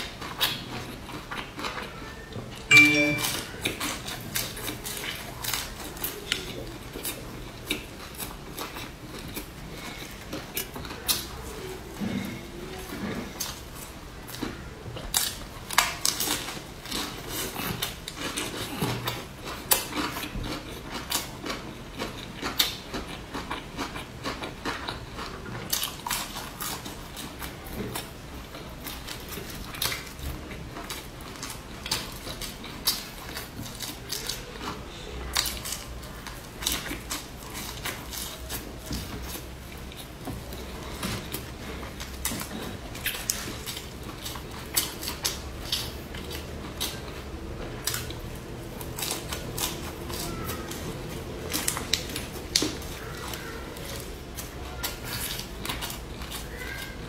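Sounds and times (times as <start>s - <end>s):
close chewing and mouth sounds: 0.0s - 57.0s.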